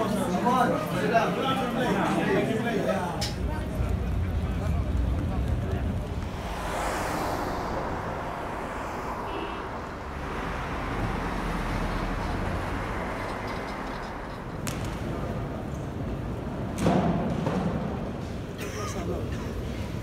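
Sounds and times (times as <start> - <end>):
road traffic noise: 3.2 - 16.6.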